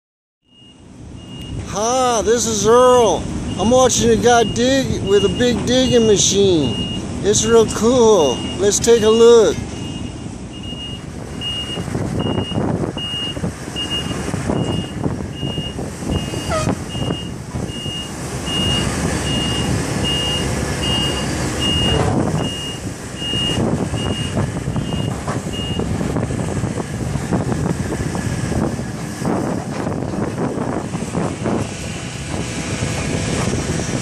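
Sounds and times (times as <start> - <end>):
backup alarm beeping: 0.5 - 1.6, 3.5 - 9.2, 9.8 - 25.9
excavator engine and hydraulics: 0.5 - 34.0
excavator digging dirt: 1.2 - 34.0.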